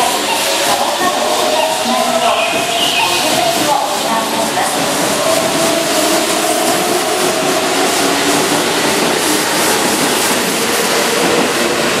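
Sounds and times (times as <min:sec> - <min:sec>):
electric train running: 0:00.0 - 0:12.0.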